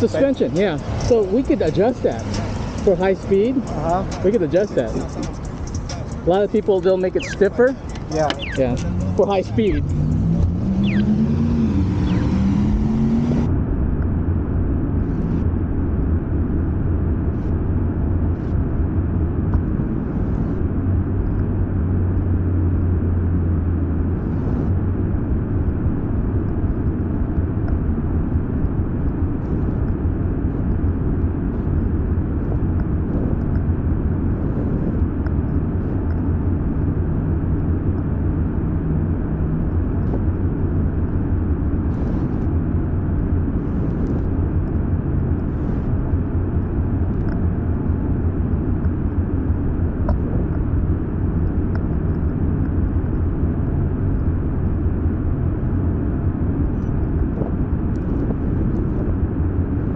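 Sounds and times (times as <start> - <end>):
wind on microphone: 24.1 - 59.9.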